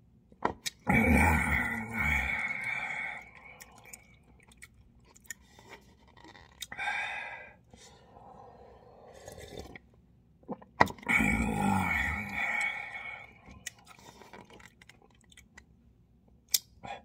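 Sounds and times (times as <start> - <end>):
person chewing noodles: 0.6 - 6.8, 11.2 - 15.6
short vocal sounds: 0.8 - 3.3.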